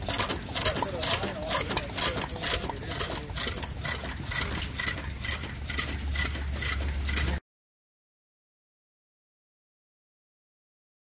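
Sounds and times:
model gas engine running: 0.0 - 7.4.

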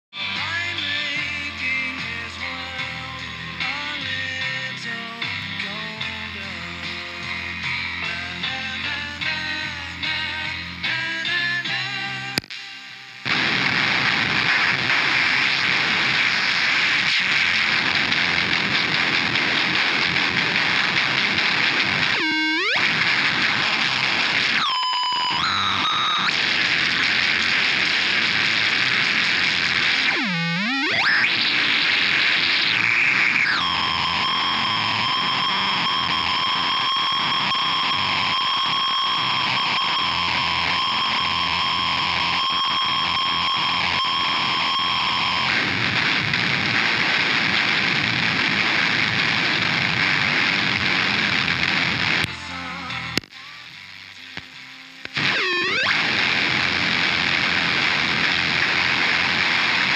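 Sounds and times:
distorted electronic static: 0.2 - 59.9
high electronic squeal: 22.1 - 23.3, 24.5 - 26.4, 30.0 - 45.5, 55.2 - 56.2.

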